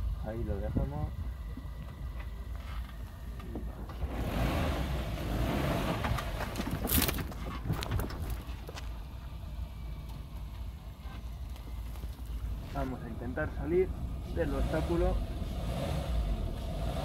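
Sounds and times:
engine low rumble: 0:00.0 - 0:17.0
tyre and body noise: 0:05.8 - 0:09.0.

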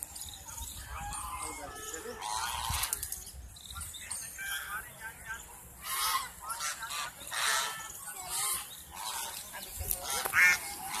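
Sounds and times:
geese honking: 0:00.8 - 0:03.0, 0:05.8 - 0:11.0.

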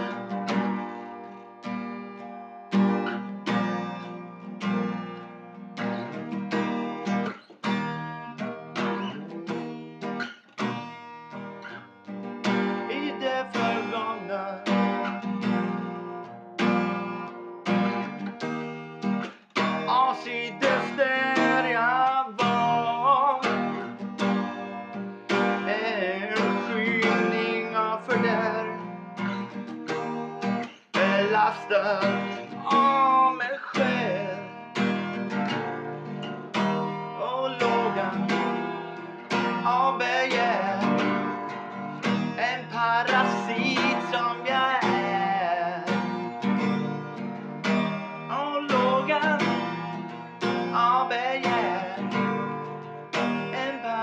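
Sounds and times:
guitar chords strumming: 0:00.0 - 0:54.0
man singing: 0:12.7 - 0:16.2, 0:19.6 - 0:29.3, 0:30.5 - 0:46.7, 0:47.7 - 0:54.0.

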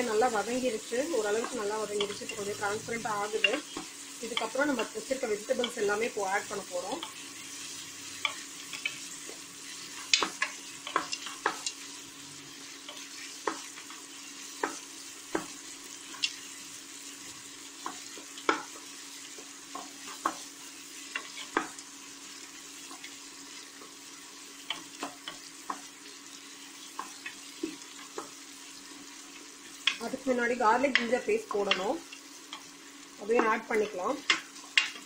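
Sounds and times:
onions sizzling in pot: 0:00.0 - 0:35.0.

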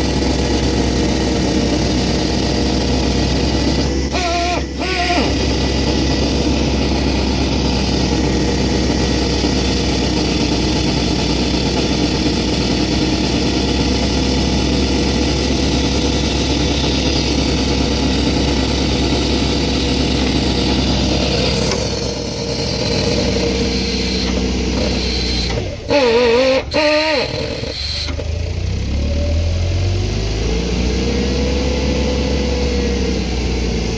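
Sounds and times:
engine running steadily: 0:00.0 - 0:33.9
low rumble with rising tone: 0:05.3 - 0:12.7.

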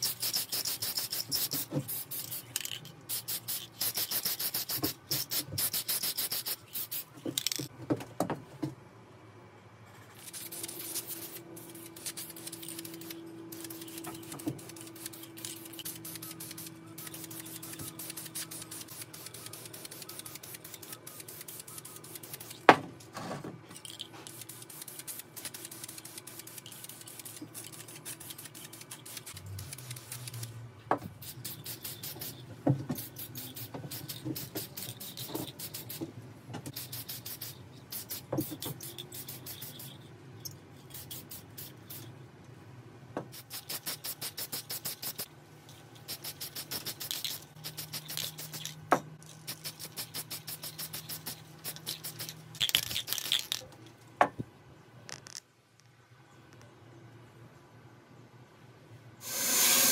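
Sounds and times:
aerosol spray can hissing: 0:00.0 - 0:07.5, 0:13.6 - 0:22.6, 0:31.2 - 0:36.0, 0:36.7 - 0:40.0, 0:43.4 - 0:45.3, 0:46.0 - 0:48.8, 0:49.5 - 0:52.3, 0:59.2 - 0:59.9.

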